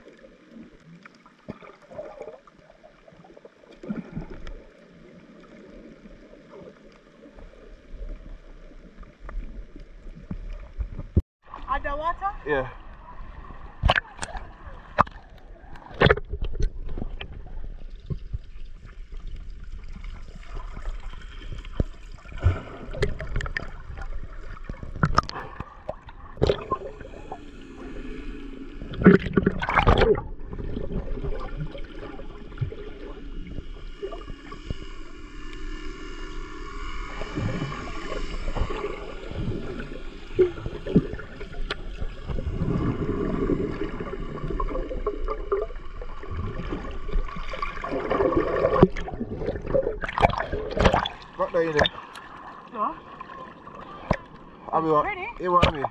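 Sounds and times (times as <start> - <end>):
underwater gurgling and bubbling: 0.0 - 11.8, 12.8 - 55.9
splashes: 17.7 - 54.6.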